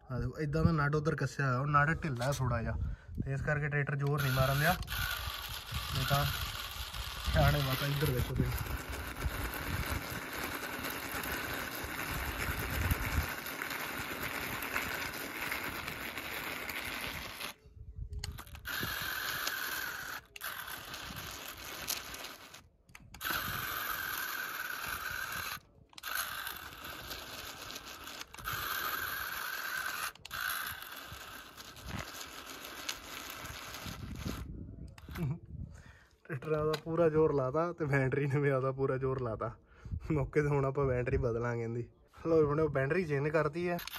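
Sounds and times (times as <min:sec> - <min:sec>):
small electric motor whining: 0:03.9 - 0:35.4
wheels scraping in sand: 0:04.1 - 0:17.6, 0:18.3 - 0:35.3.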